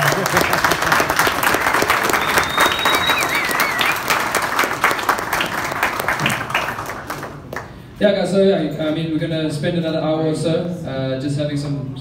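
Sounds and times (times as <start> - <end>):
audience applauding: 0.0 - 7.8
high whistle: 2.1 - 4.0
short warbling whistle: 2.2 - 4.0.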